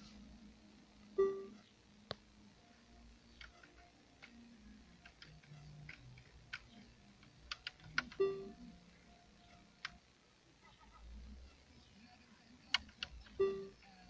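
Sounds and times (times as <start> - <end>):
faint low hum: 0.0 - 14.0
short electronic beep: 13.4 - 13.7.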